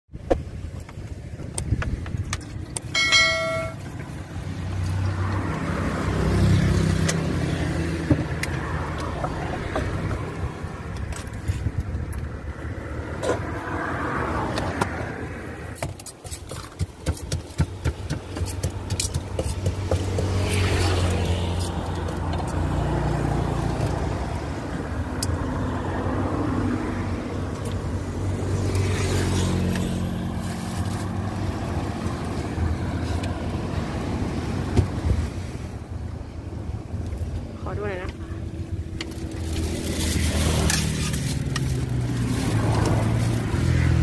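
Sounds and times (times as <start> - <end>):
road traffic passing: 0.1 - 44.0
bowls and utensils clinking: 3.0 - 3.8
short beep: 3.0 - 3.8.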